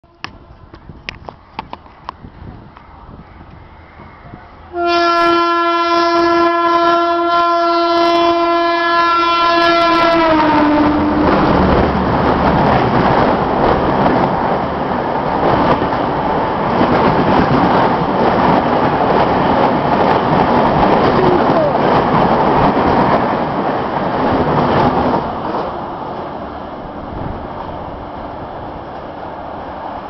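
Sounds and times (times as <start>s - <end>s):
train coaches rolling past: 0.1s - 30.0s
locomotive horn blast: 4.7s - 11.5s.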